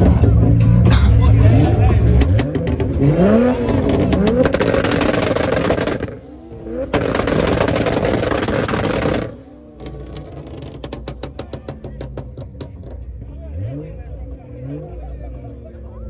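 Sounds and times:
exhaust popping and banging: 0.0s - 13.4s.

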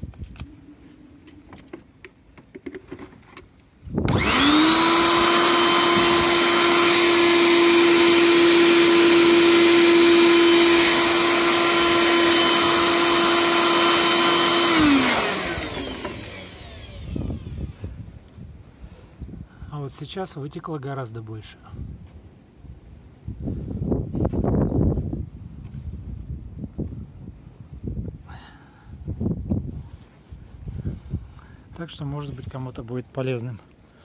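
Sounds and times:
air blower whining: 3.9s - 18.1s.

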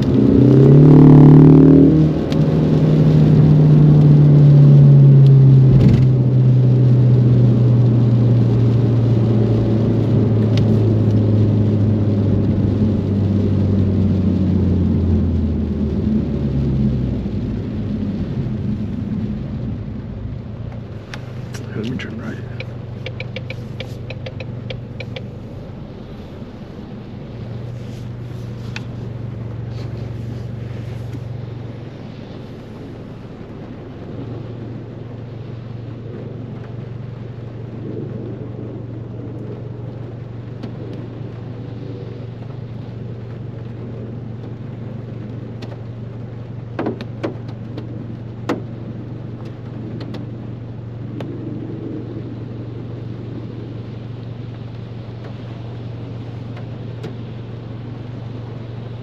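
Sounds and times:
car engine drone: 0.0s - 59.0s
tyres on wet road: 0.0s - 59.0s
sharp clicks: 22.5s - 25.3s.

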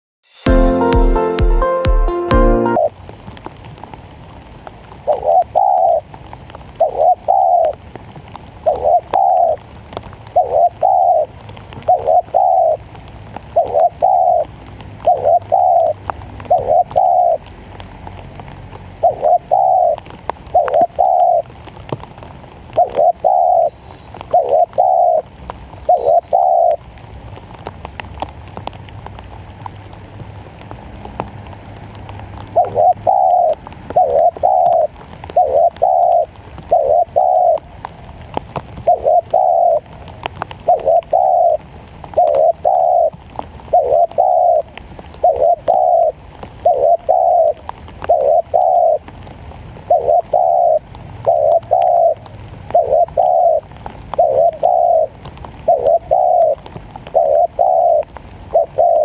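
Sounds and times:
dove cooing: 5.1s - 6.1s, 6.8s - 7.8s, 8.6s - 9.6s, 10.3s - 12.8s, 13.5s - 17.4s, 19.0s - 21.5s, 22.7s - 26.8s, 32.6s - 37.7s, 38.8s - 40.0s, 40.6s - 41.6s, 42.2s - 49.1s, 49.8s - 59.0s.

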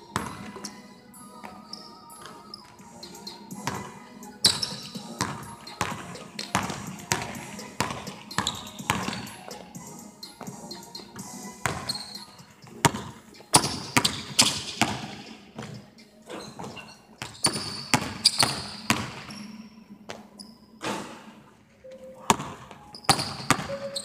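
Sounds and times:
basketball bouncing on hardwood floor: 3.6s - 9.3s, 11.6s - 12.0s, 12.8s - 15.7s, 16.6s - 19.3s, 22.3s - 23.7s.

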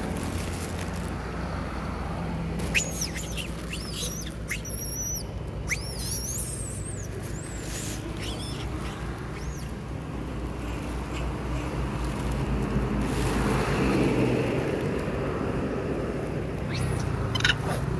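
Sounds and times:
plastic bag rustling: 0.0s - 1.6s, 2.5s - 4.8s, 6.0s - 15.1s
macaques squealing: 2.6s - 9.8s, 16.6s - 17.9s.

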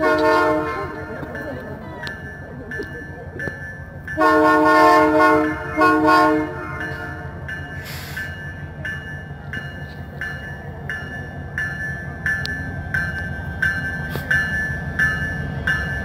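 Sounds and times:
locomotive horn blasts: 0.0s - 1.2s, 4.2s - 7.4s
train rumble: 0.0s - 16.0s.

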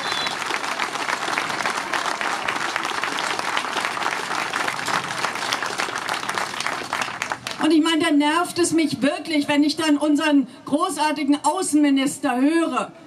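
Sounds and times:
crowd applauding: 0.0s - 7.7s.

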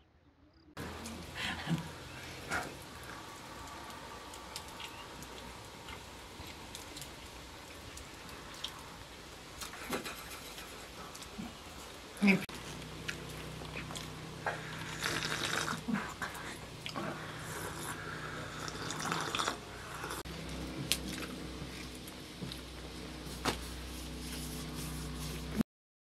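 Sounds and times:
low hum: 0.0s - 25.6s
tea sipped and slurped: 12.5s - 20.3s.

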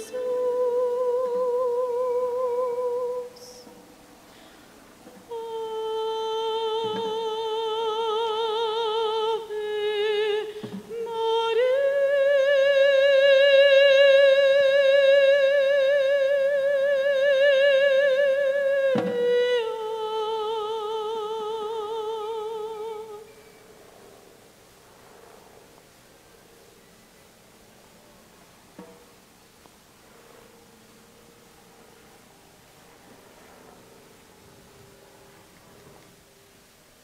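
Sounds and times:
high voice singing held notes: 0.0s - 3.7s.

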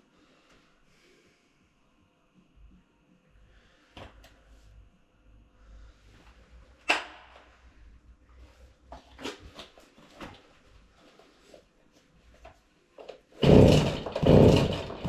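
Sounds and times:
chainsaw knocking on concrete: 13.4s - 15.0s.

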